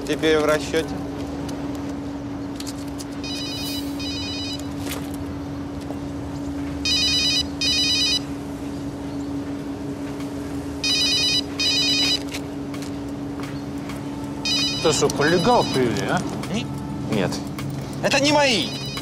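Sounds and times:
steady low hum: 0:00.0 - 0:19.0
mobile phone ringing: 0:03.2 - 0:04.8, 0:06.8 - 0:08.3, 0:10.8 - 0:12.4, 0:14.4 - 0:16.2, 0:18.2 - 0:19.0.

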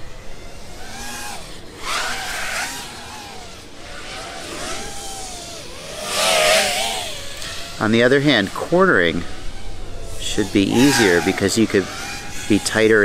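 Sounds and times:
quadcopter motors whining: 0:00.0 - 0:13.0.

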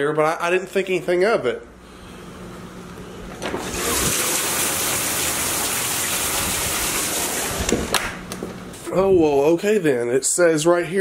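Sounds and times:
heavy rain pouring: 0:03.7 - 0:07.7.

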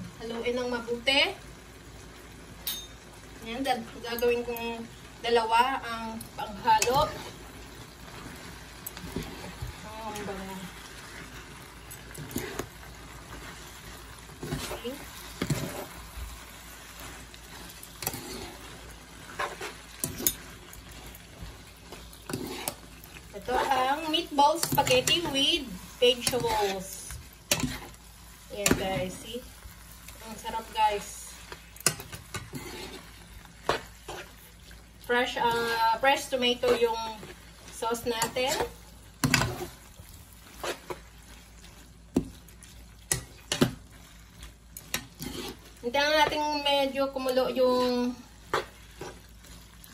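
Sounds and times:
food sizzling in a frying pan: 0:00.0 - 0:49.9
metal spoons clinking on pan: 0:02.6 - 0:03.0.

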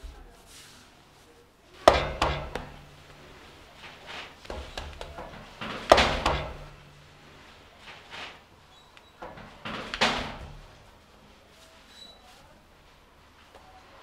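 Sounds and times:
soft dough thuds: 0:00.0 - 0:08.5
dough slapping on table: 0:01.8 - 0:07.0.

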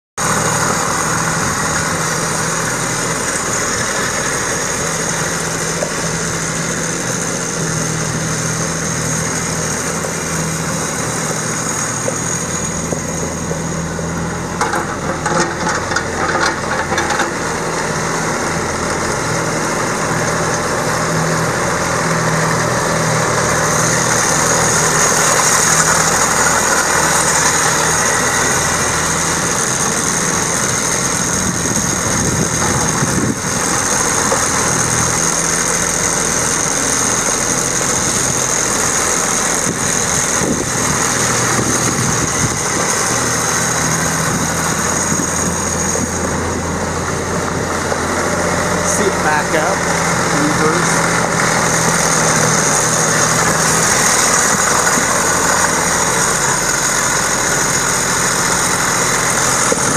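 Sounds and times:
diesel engine idling: 0:00.2 - 0:59.9
high whine: 0:17.2 - 0:59.9.

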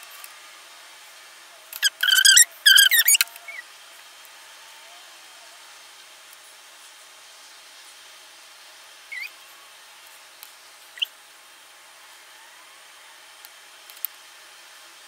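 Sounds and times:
faint steady hiss: 0:00.0 - 0:15.0
high-pitched rising squeaks: 0:01.8 - 0:03.6.

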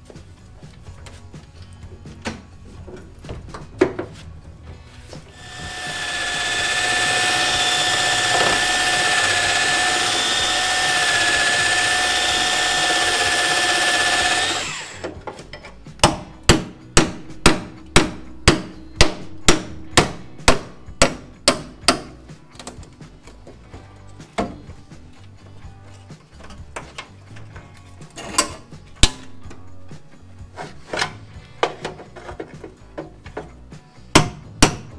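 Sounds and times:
power tool whining: 0:05.3 - 0:15.2.

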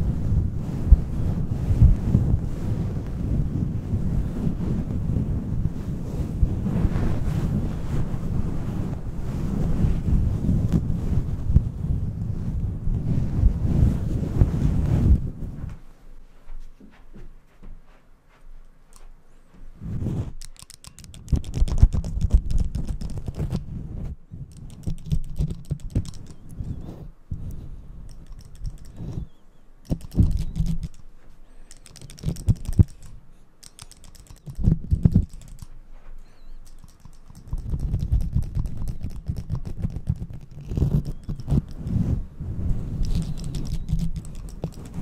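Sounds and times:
rubbing on microphone fur: 0:00.0 - 0:15.8, 0:16.5 - 0:45.0
hand clippers clicking: 0:20.4 - 0:23.4, 0:28.1 - 0:29.0, 0:29.8 - 0:31.0, 0:31.6 - 0:35.7, 0:36.5 - 0:41.8.

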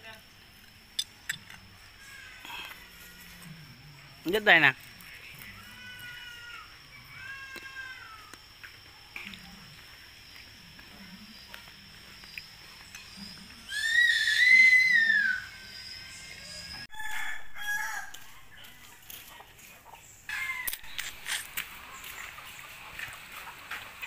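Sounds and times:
rooster crowing: 0:14.1 - 0:18.4.

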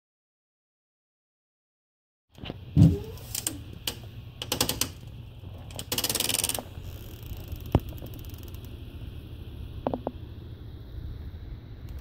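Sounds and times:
crunching clicks: 0:03.3 - 0:08.8
rapid ticking: 0:03.8 - 0:08.9.

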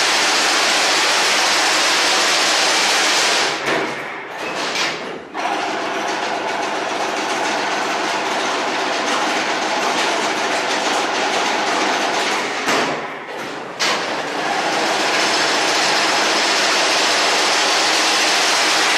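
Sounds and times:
fence weaving machine clattering: 0:00.0 - 0:18.9.

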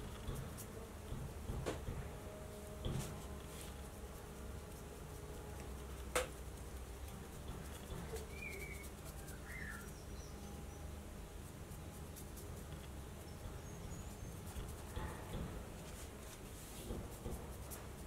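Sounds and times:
steady low hum: 0:00.0 - 0:18.0
faint bird chirps: 0:08.1 - 0:10.9.

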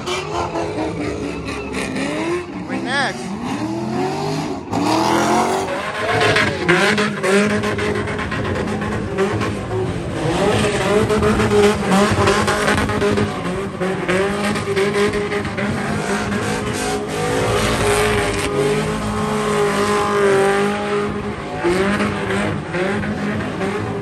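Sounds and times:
car engine at high revs: 0:00.0 - 0:24.0
tires squealing: 0:00.0 - 0:24.0.

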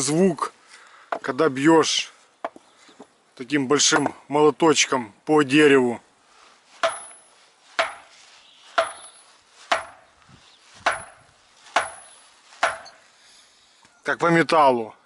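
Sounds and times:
hammer striking wood: 0:06.8 - 0:07.2, 0:07.8 - 0:08.1, 0:08.8 - 0:10.0, 0:10.8 - 0:12.9.

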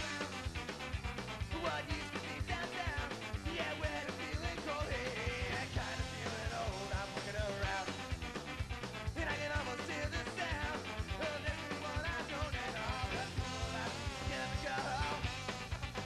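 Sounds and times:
upbeat rock band music: 0:00.0 - 0:16.0.

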